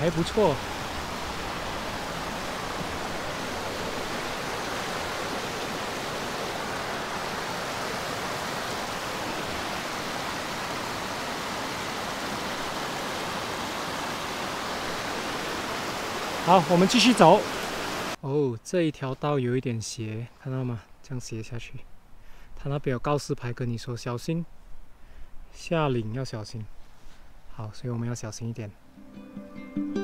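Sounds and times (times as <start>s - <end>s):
creek rushing over rocks: 0.0s - 18.2s.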